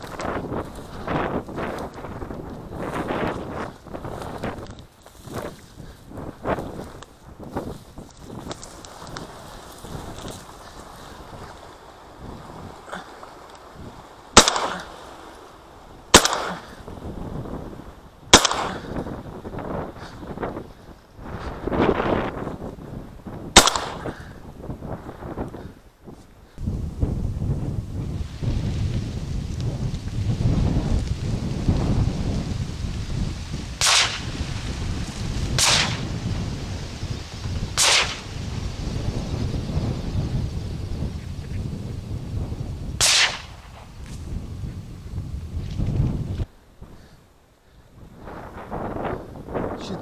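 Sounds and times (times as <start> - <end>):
low wind rumble: 0.0 - 50.0
shotgun shots: 14.4 - 14.9, 16.1 - 16.7, 18.3 - 18.9, 23.6 - 24.1, 33.8 - 34.3, 35.6 - 36.1, 37.8 - 38.3, 43.0 - 43.9.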